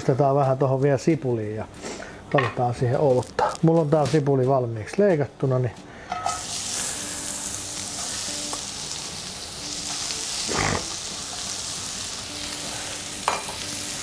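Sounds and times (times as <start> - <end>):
onions sizzling in a frying pan: 6.2 - 14.0.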